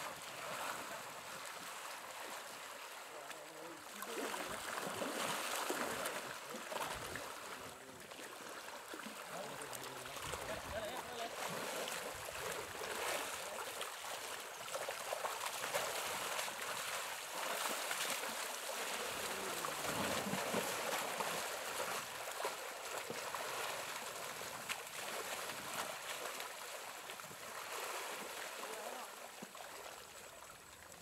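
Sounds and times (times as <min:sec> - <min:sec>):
muddy water sloshing and splashing: 0:00.0 - 0:31.0.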